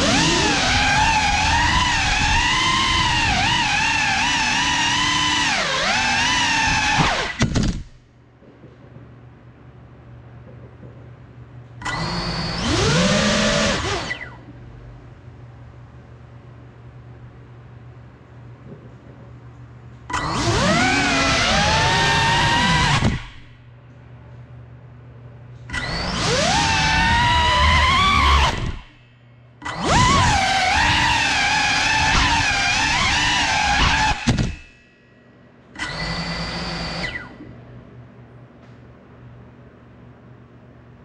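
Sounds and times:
drone propellers whining: 0.0s - 7.6s, 11.8s - 14.5s, 20.1s - 23.6s, 25.7s - 29.0s, 29.6s - 34.7s, 35.8s - 37.5s.

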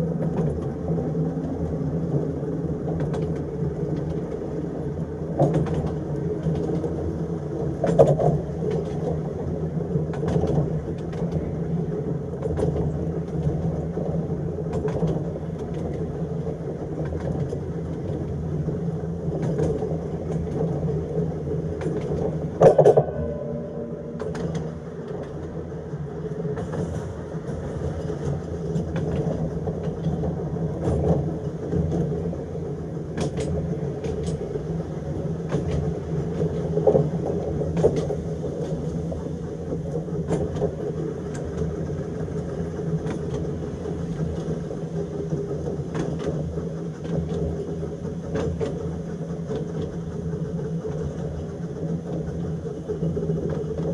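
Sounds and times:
tram rumble and motor hum: 0.0s - 53.9s
wheels clicking on rails: 0.0s - 53.9s
metal clank with ringing tone: 22.7s - 25.7s.

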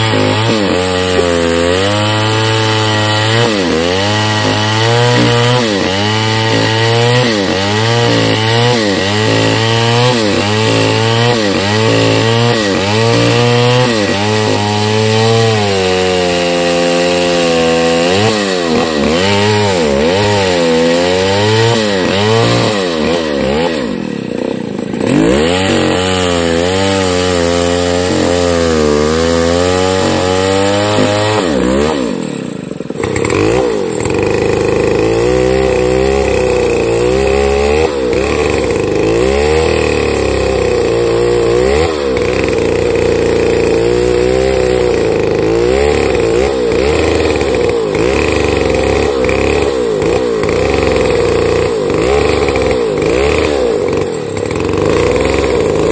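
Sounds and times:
chainsaw cutting log: 0.0s - 55.9s.

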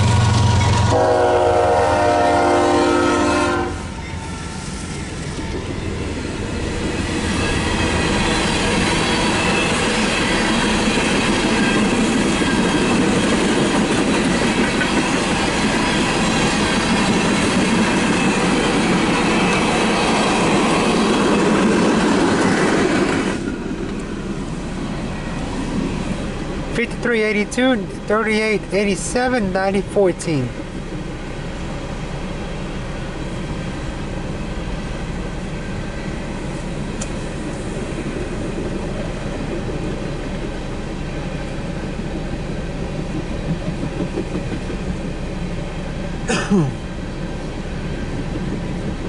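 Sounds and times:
locomotive horn chord: 0.0s - 4.1s
train wheel clatter: 4.8s - 24.2s, 42.8s - 45.6s, 47.4s - 49.0s.

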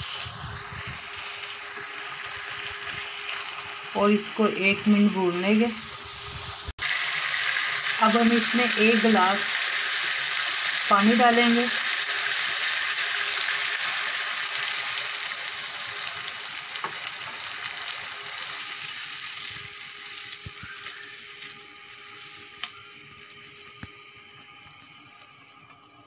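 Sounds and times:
vegetables sizzling in wok: 0.0s - 26.0s.

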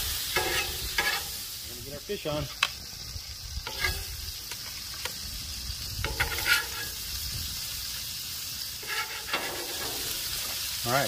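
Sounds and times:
fish sizzling on a griddle: 0.0s - 11.0s.

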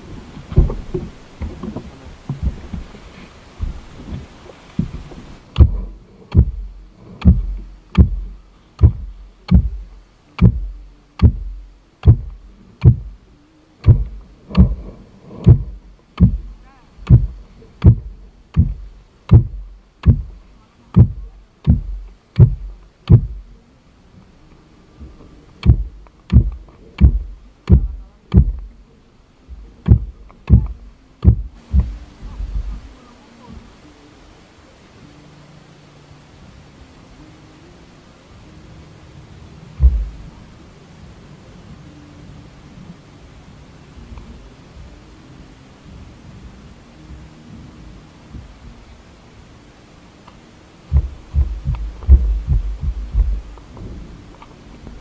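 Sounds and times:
wind on microphone: 0.0s - 13.2s, 13.8s - 23.5s, 29.5s - 33.7s, 50.8s - 55.0s.

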